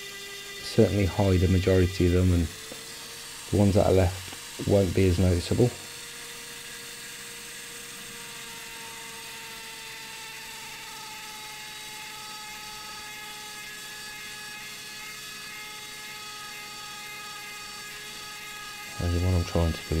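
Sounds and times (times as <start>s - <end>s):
rotary tool high whine: 0.0s - 20.0s.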